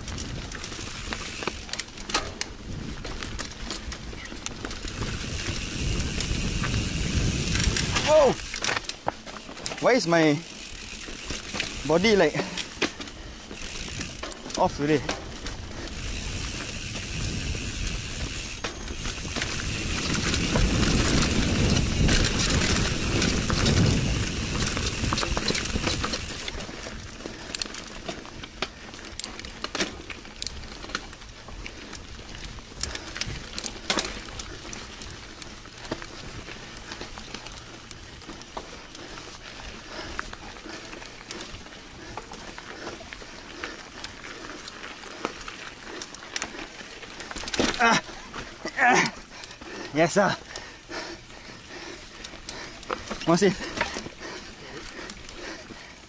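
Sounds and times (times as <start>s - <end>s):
rushing wind: 0.0s - 8.9s, 9.7s - 27.5s
bike clicks and rattles: 0.0s - 56.0s
bike tyre noise on dirt: 0.0s - 56.0s.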